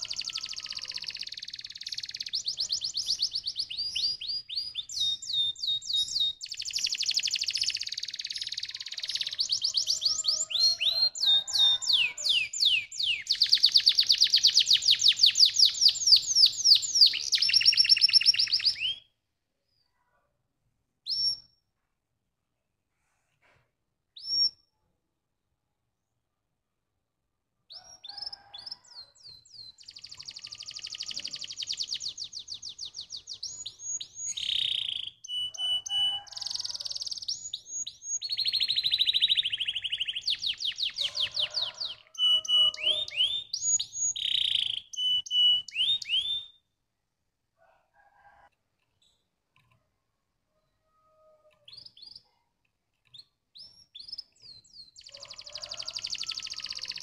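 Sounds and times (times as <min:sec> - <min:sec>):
canary singing trills: 0:00.0 - 0:19.1, 0:27.7 - 0:46.6, 0:51.0 - 0:52.4, 0:53.0 - 0:57.0.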